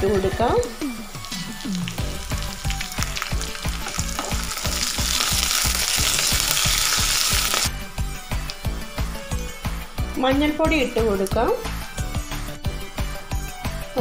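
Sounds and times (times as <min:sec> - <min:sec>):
food sizzling in hot oil: 0:00.0 - 0:07.7.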